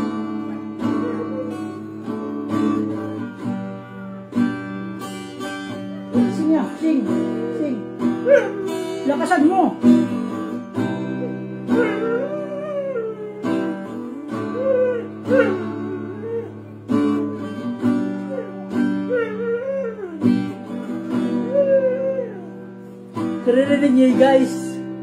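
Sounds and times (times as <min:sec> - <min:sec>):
dog howling: 0:00.0 - 0:02.2, 0:07.1 - 0:09.1, 0:11.1 - 0:22.8
acoustic guitar strumming: 0:00.0 - 0:25.0.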